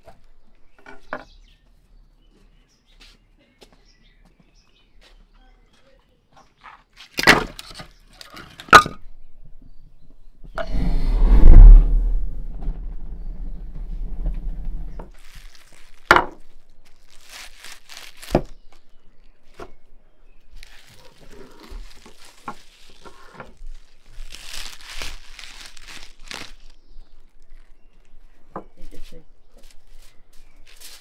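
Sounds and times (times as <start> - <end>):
loud low rumble: 10.6 - 14.9
logs scraping and knocking: 10.6 - 15.2.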